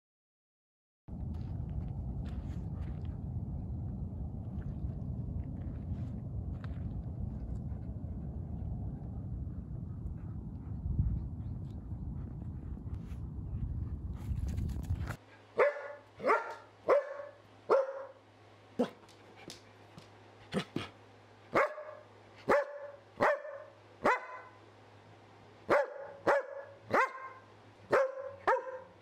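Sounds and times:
dog barking: 15.6 - 18.2, 18.8 - 19.0, 21.5 - 24.6, 25.7 - 29.0.

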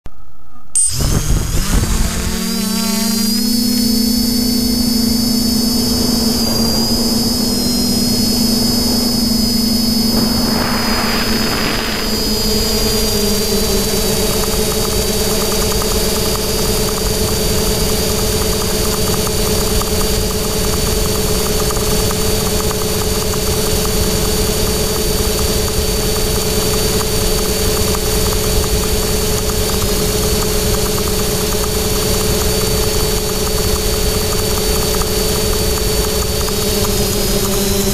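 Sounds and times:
quadcopter propellers buzzing: 0.4 - 37.9
short rush of noise: 7.7 - 13.2.

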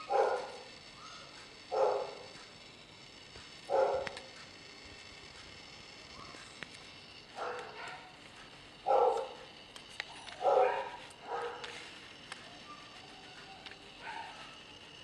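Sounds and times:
bark-like animal calls: 10.4 - 11.6, 12.6 - 14.6
faint clicks: 11.6 - 14.5.

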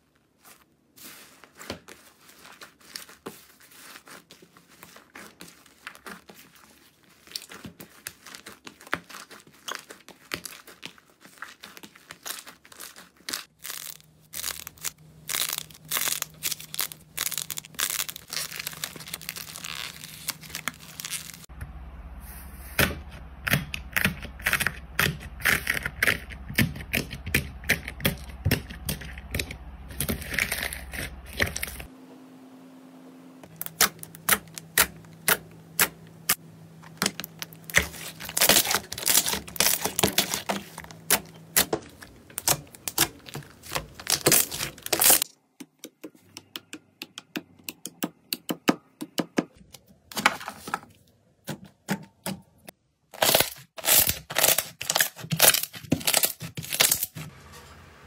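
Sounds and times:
slime crackling and squelching: 0.0 - 21.5, 23.4 - 31.9, 33.5 - 45.3, 53.1 - 57.2.

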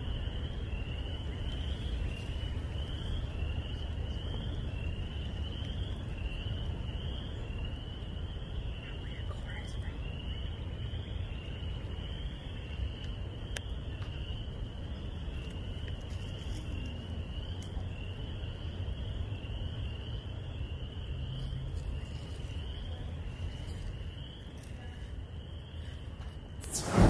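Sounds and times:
frogs calling in trills: 0.0 - 26.6
low rumble: 26.6 - 27.0.

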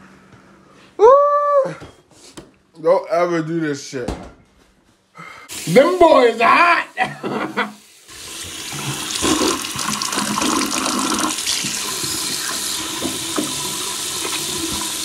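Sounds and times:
tap water running into sink: 5.6 - 15.0.

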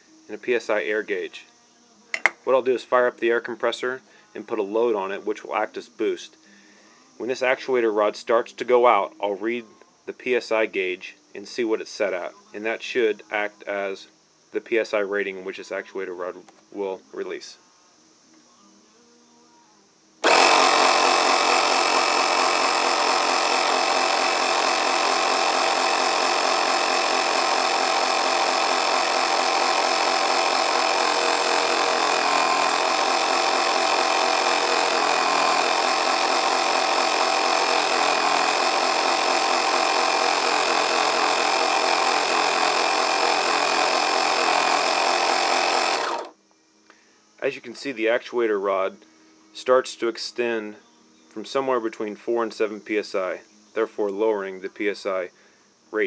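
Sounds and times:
air compressor running: 2.2 - 2.4, 20.2 - 46.4.

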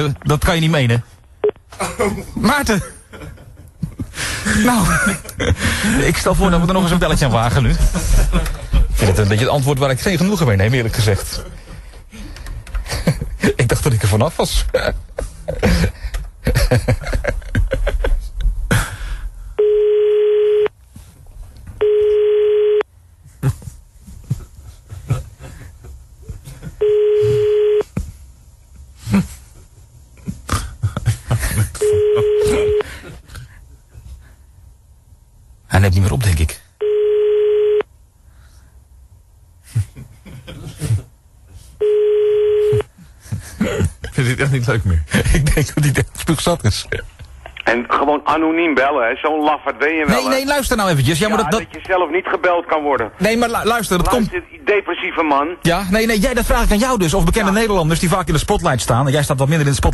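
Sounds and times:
telephone ringback tone: 19.6 - 20.7, 21.8 - 22.8, 26.8 - 27.8, 31.8 - 32.8, 36.8 - 37.8, 41.8 - 42.9.

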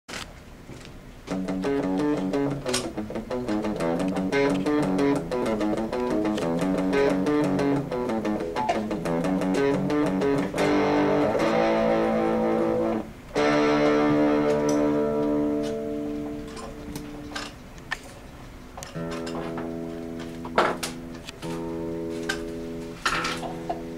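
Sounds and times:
electric guitar notes and chords: 1.3 - 17.6, 18.9 - 23.9.

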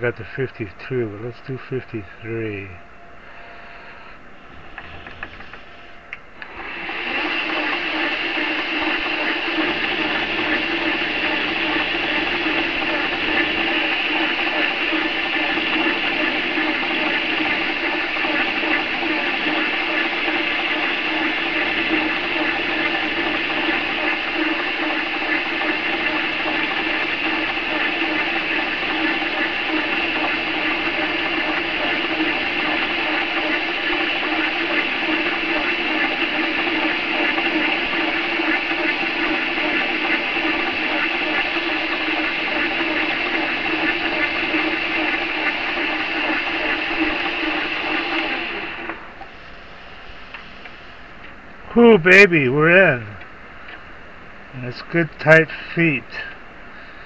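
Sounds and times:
metal lathe running: 6.4 - 50.7.

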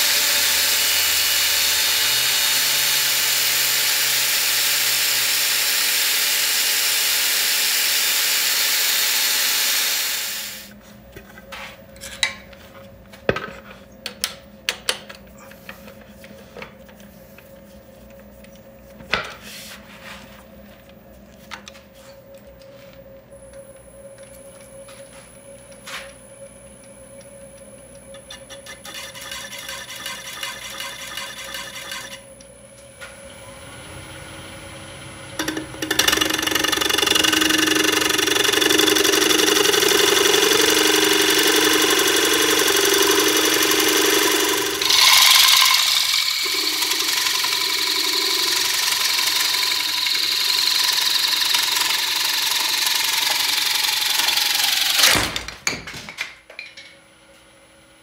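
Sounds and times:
power tool cutting wood: 0.0 - 10.7, 28.7 - 32.2, 33.5 - 55.3.

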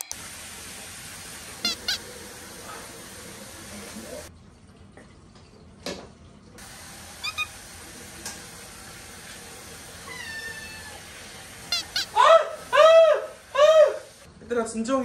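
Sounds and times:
cat meowing: 1.6 - 2.0, 7.2 - 7.5, 10.1 - 11.0, 11.7 - 12.3
cat chirping calls: 1.6 - 2.1, 7.2 - 7.6, 10.1 - 11.0, 11.7 - 12.4.

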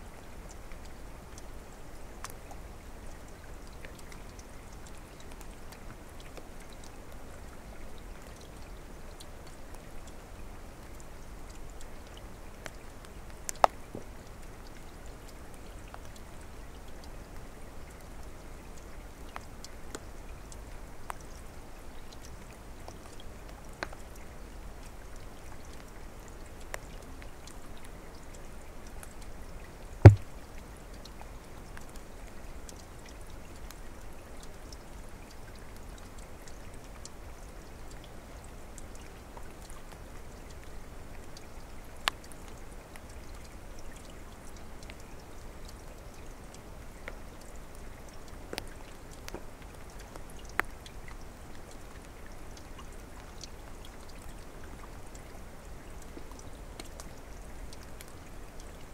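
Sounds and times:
stream trickling and splashing: 0.0 - 58.9
water drips and plops: 0.0 - 58.9
sharp thump: 30.1 - 30.3.

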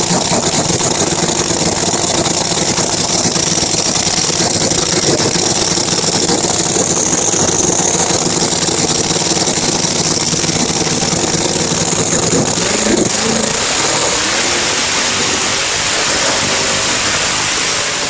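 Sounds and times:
drag car engine idling loudly: 0.0 - 18.0.

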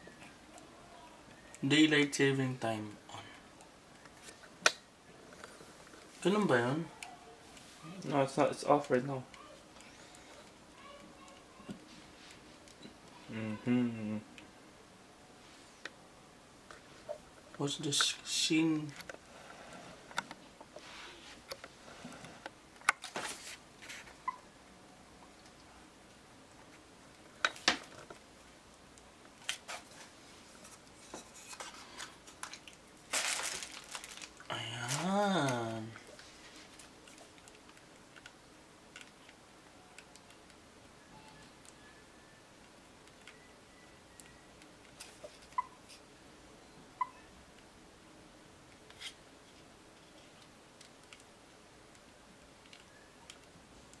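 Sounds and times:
plastic packaging crinkle: 29.4 - 37.8.

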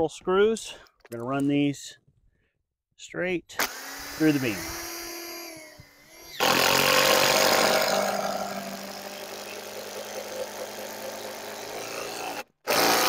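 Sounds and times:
cordless drill driving screw: 3.6 - 13.0.

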